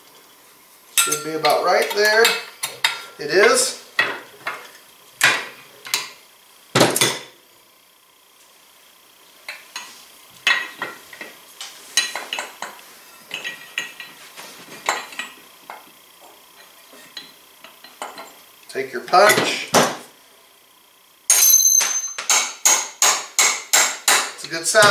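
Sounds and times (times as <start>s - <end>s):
hand tools clinking on metal: 1.0s - 3.7s, 21.3s - 22.5s.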